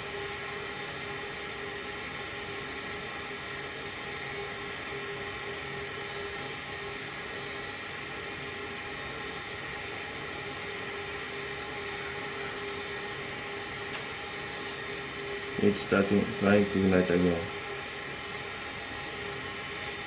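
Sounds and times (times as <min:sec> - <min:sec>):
heating unit whir and hum: 0:00.0 - 0:20.0
small click: 0:13.9 - 0:14.1.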